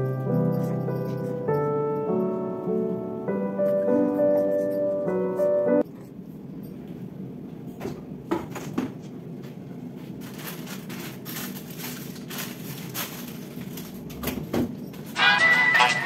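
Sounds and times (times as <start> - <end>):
items moved on shelves: 8.4 - 16.0
plastic bag rustling: 9.9 - 14.3.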